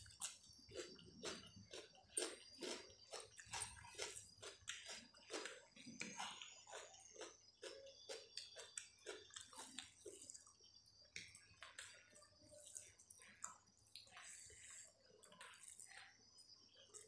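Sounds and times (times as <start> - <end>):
soft chewing: 0.0 - 17.0.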